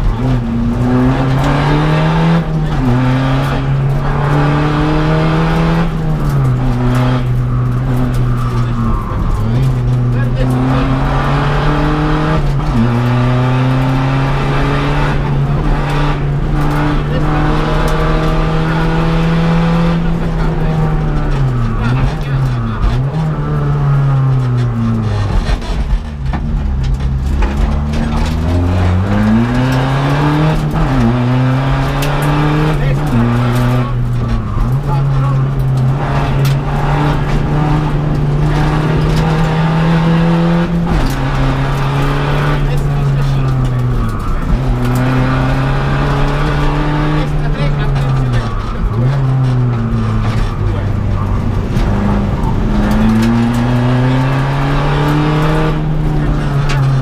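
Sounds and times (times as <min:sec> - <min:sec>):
car engine pulling hard: 0:00.0 - 0:57.0.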